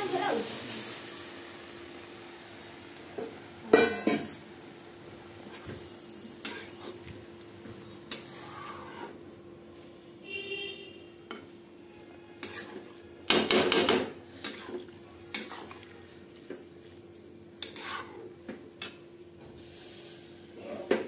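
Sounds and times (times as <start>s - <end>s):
spatula scraping metal pan: 6.4s - 7.0s, 8.1s - 9.2s, 12.2s - 15.8s, 17.6s - 18.3s.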